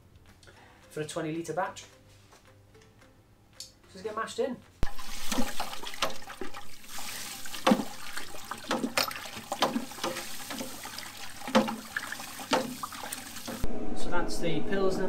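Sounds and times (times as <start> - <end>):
grain pouring into water: 4.8 - 13.6
sharp knocks: 8.7 - 10.2, 11.5 - 11.8, 12.5 - 12.8.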